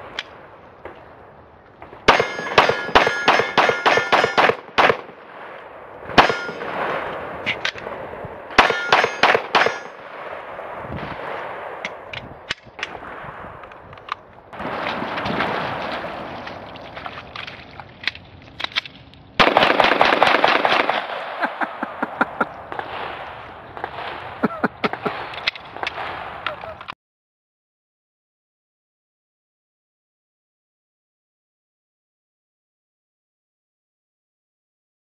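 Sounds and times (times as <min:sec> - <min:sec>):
pistol shots: 0:02.0 - 0:05.2, 0:06.2 - 0:07.0, 0:08.6 - 0:10.4, 0:19.4 - 0:21.4
steel targets ringing: 0:02.1 - 0:04.5, 0:06.2 - 0:06.7, 0:08.6 - 0:10.0.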